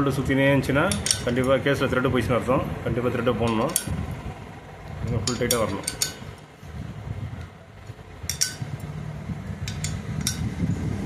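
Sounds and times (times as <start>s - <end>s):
low steady hum: 0.0s - 11.0s
spanner clinking on bolts: 0.7s - 1.8s, 3.1s - 4.0s, 4.9s - 6.5s, 7.4s - 9.0s, 9.6s - 10.6s.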